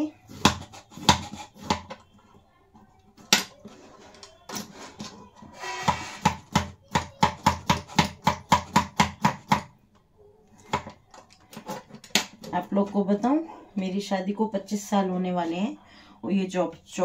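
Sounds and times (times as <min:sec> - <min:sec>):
chopper cutting cucumber on board: 0:00.3 - 0:01.9.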